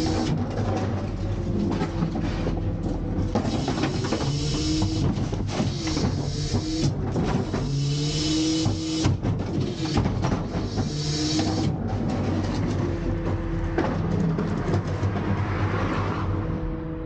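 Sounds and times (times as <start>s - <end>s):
garbage truck packer panel hydraulics: 0.0s - 13.2s
steady shifting tones: 0.0s - 17.0s
truck engine running: 0.0s - 17.0s
hiss: 3.5s - 11.7s.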